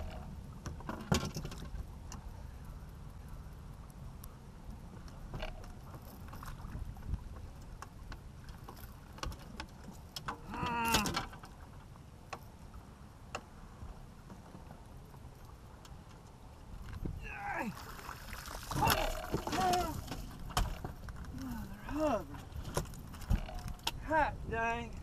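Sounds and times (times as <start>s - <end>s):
wind and water rumble: 0.0s - 25.0s
net and gear knocking on boat: 18.6s - 21.2s.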